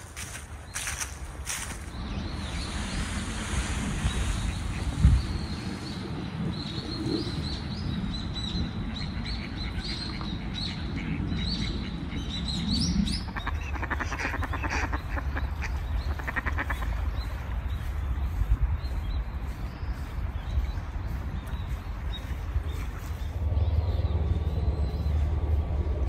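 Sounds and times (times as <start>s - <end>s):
small birds chirping: 0.0s - 26.0s
steady low rumble: 0.0s - 26.0s
ducks quacking: 13.2s - 17.4s.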